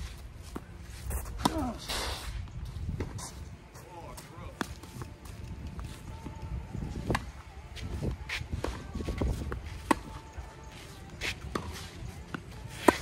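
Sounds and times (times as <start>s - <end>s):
shoes shuffling on court: 0.0s - 13.0s
rackets striking tennis ball: 8.6s - 10.2s, 11.2s - 13.0s.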